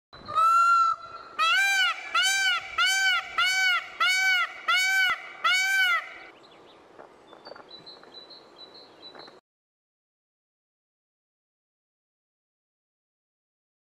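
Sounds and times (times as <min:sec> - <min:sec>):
peacock honking calls: 0:00.3 - 0:06.3.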